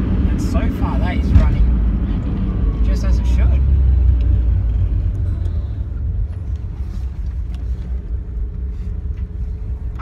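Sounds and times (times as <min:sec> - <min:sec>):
car engine drone inside car: 0:00.0 - 0:10.0
road noise: 0:00.0 - 0:10.0.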